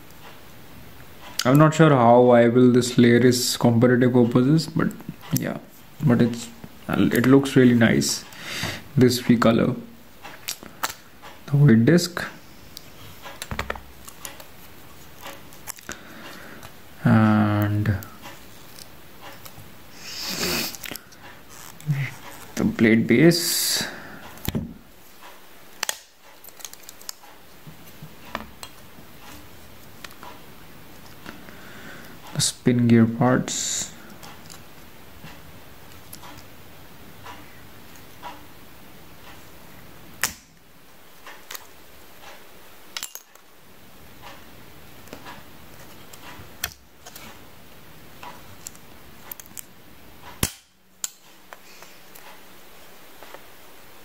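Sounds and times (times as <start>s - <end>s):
plastic parts snapping: 25.8s - 27.2s.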